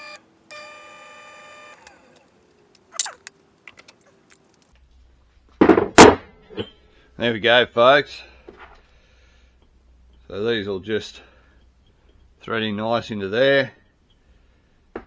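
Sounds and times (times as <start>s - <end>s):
drill motor whining: 0.0s - 2.3s.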